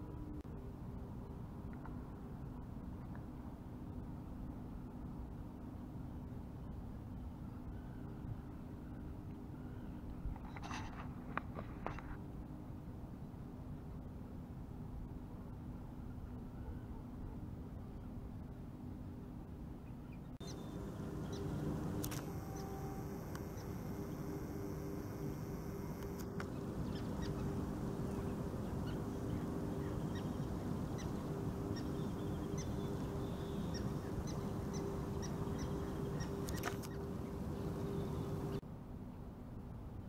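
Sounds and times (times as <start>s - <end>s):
animal calls: 20.4s - 37.1s
steady low drone: 20.4s - 38.6s.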